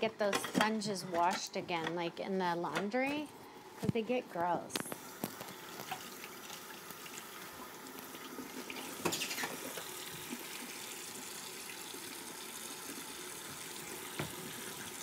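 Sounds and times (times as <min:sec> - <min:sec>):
tap water running into sink: 0:05.2 - 0:15.0.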